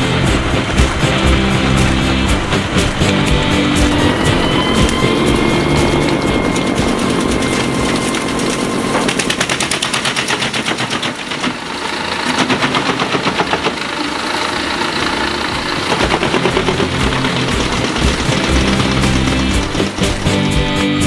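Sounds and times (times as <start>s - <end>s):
tractor engine under load: 0.0s - 21.0s
wood chipper cracking logs: 0.0s - 21.0s.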